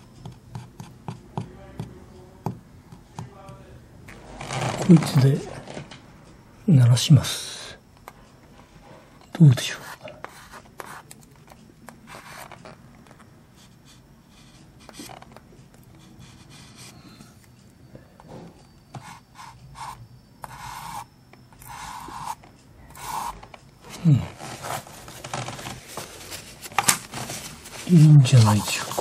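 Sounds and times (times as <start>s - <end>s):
rubbing and scraping on wooden floor: 4.1s - 5.9s, 23.0s - 29.0s.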